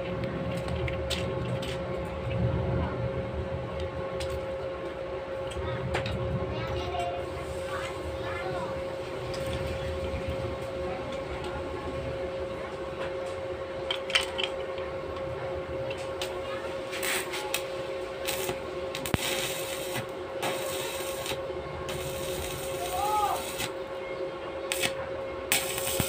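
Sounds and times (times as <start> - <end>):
steady hum: 0.0 - 26.0
welding arc crackling hiss: 16.2 - 23.8, 24.7 - 26.0.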